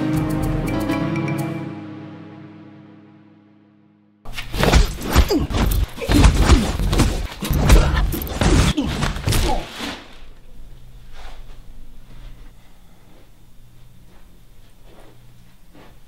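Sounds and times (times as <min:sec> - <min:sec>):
music: 0:00.0 - 0:04.3
body hitting wall and floor: 0:04.3 - 0:10.1
punches landing: 0:04.3 - 0:10.3.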